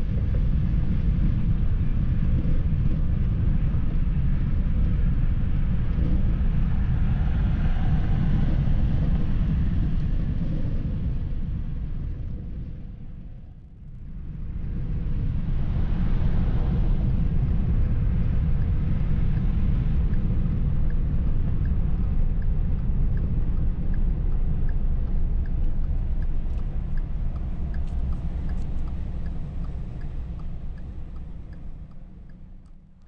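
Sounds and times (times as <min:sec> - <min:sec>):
car road noise rumble: 0:00.0 - 0:33.0
faint regular ticking: 0:23.9 - 0:33.0.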